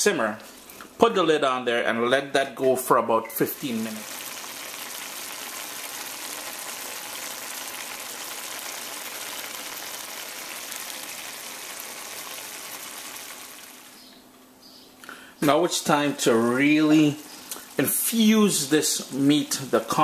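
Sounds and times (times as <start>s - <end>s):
sauce bubbling and sizzling: 3.4s - 14.2s.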